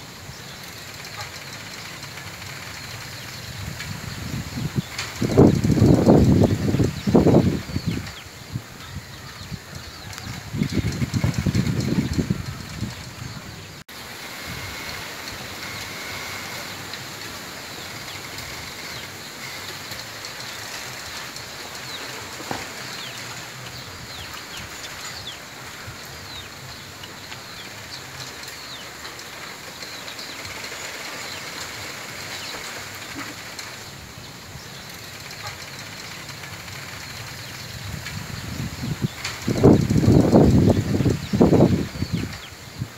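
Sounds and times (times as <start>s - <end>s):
bamboo rustling in wind: 0.0s - 42.9s
bamboo squeaking: 8.8s - 42.6s.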